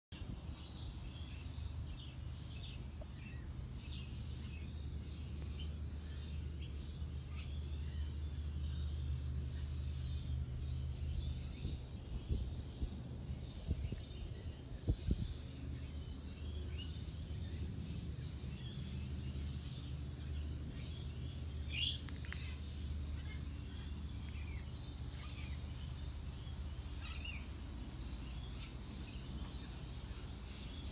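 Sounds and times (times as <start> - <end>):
insect trill: 0.2 - 30.9
low background rumble: 3.3 - 30.7
bird chirps: 20.8 - 27.5.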